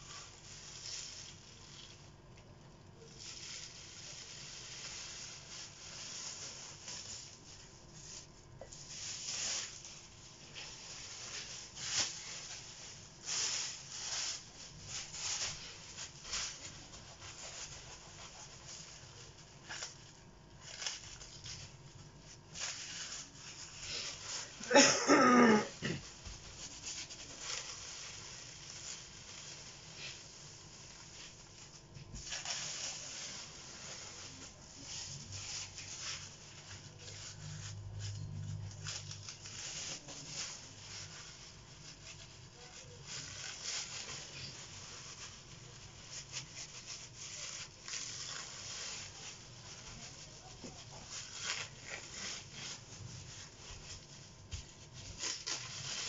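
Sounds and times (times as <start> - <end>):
plastic bag crinkling: 0.0 - 56.0.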